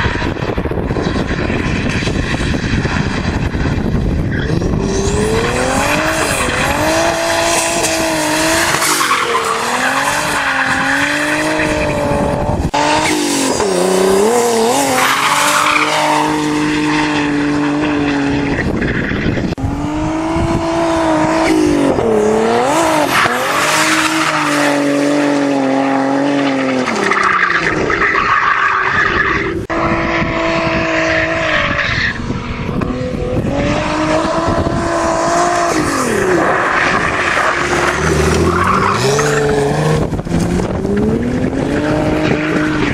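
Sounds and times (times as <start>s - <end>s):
tyres squealing and skidding: 0.0s - 19.6s, 21.0s - 32.6s, 33.6s - 40.2s, 41.1s - 42.9s
car engine revving: 0.0s - 42.9s.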